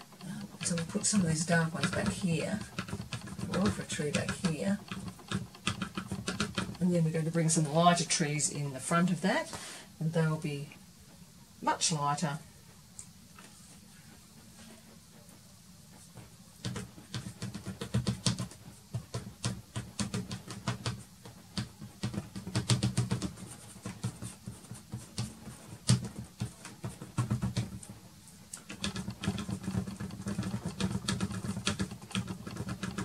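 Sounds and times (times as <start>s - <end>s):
pastel stick scratching on board: 0.0s - 7.0s, 16.0s - 28.0s, 28.6s - 33.0s.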